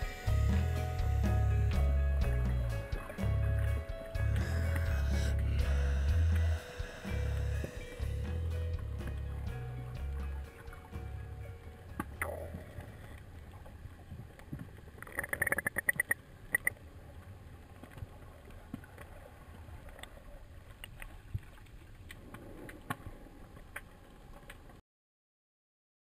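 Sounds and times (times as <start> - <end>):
underwater water wash: 0.0 - 24.8
sharp underwater clicks: 12.0 - 13.3, 14.4 - 16.8.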